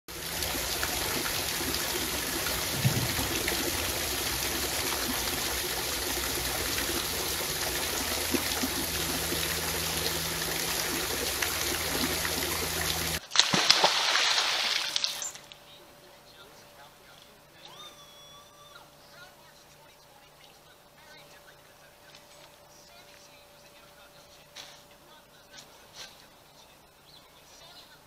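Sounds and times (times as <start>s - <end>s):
waterfall rushing and splashing: 0.1s - 13.2s.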